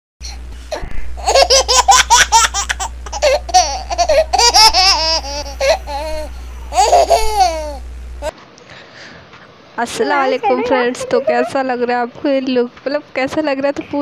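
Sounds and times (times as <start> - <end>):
low hum: 0.2 - 8.3
high-pitched laughter: 0.8 - 7.7.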